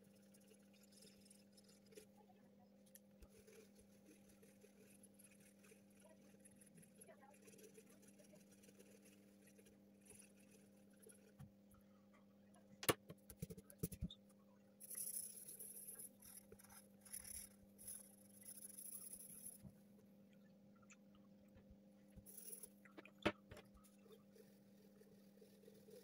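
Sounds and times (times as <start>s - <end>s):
low steady hum: 0.0s - 26.0s
pencil scratching on paper: 3.2s - 11.4s.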